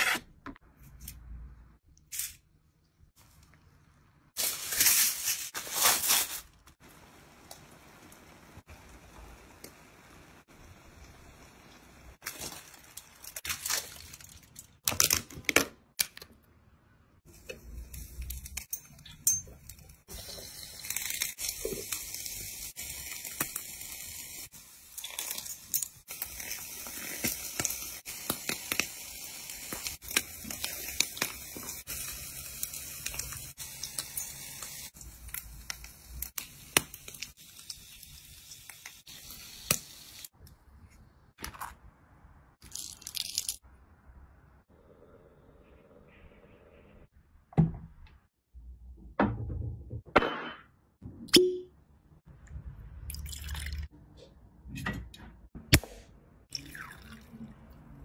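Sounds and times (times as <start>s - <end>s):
crinkling: 4.4s - 6.8s.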